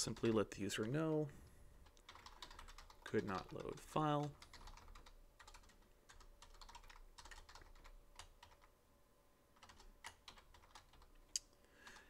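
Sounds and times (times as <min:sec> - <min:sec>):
faint keyboard typing: 0:00.0 - 0:08.8, 0:09.5 - 0:12.0.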